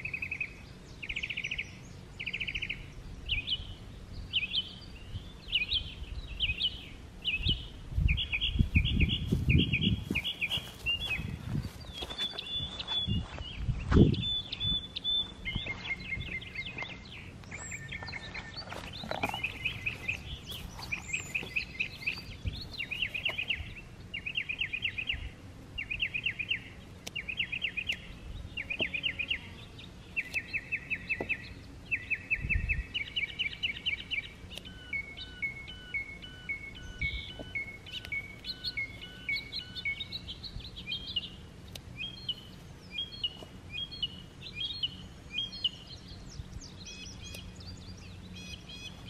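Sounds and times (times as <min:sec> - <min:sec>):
low outdoor rumble: 0:00.0 - 0:49.0
songbird trilling: 0:00.0 - 0:49.0.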